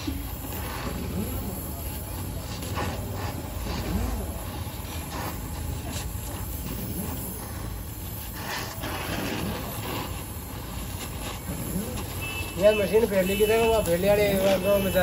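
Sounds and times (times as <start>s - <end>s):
welding torch flame hissing: 0.0s - 15.0s.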